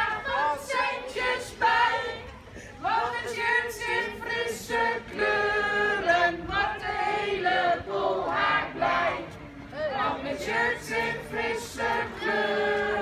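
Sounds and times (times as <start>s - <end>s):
children singing: 10.2s - 13.0s.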